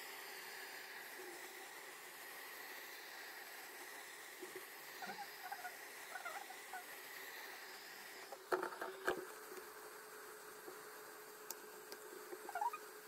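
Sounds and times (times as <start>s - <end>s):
hot-air gun hissing: 0.0s - 9.0s
faint short squeaks: 12.4s - 12.8s.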